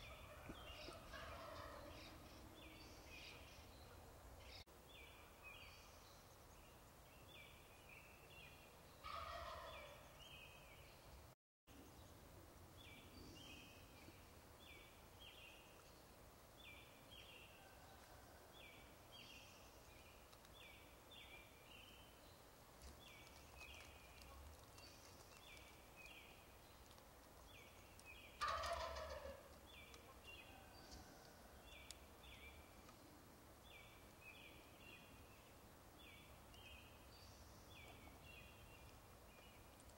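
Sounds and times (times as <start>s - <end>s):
turkey gobbling: 0.1s - 1.9s, 9.0s - 10.0s, 28.4s - 30.7s.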